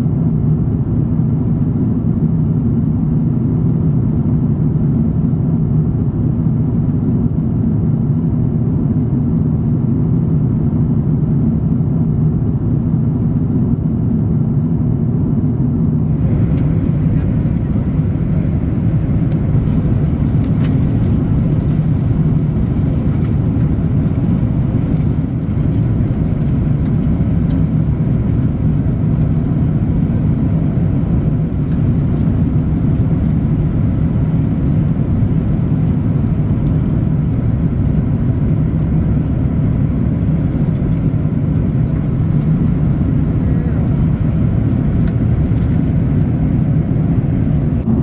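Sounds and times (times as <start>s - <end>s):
airliner cabin drone: 0.0s - 48.0s.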